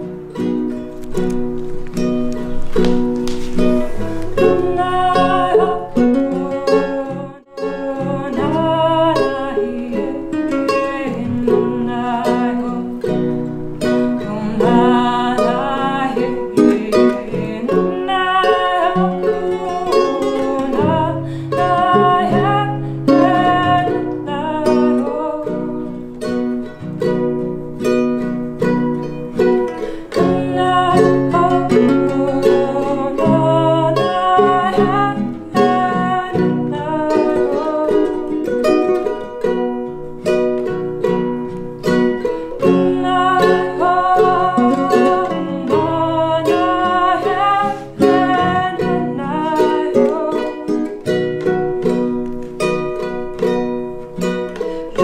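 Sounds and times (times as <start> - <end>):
acoustic guitar: 0.0 - 55.0
strummed ukulele: 0.0 - 55.0
woman singing: 3.6 - 26.1, 29.4 - 39.6, 42.2 - 52.2.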